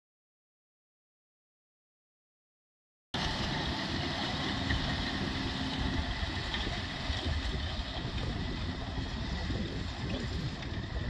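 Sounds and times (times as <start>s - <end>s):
tractor engine running under load: 3.2s - 11.0s.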